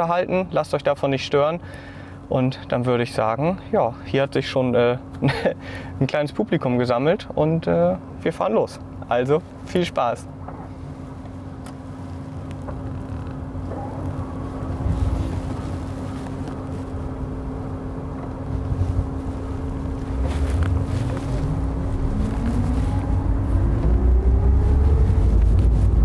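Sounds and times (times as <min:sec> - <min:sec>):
tyre and road rumble: 0:09.5 - 0:26.0
electric car motor hum: 0:10.4 - 0:26.0.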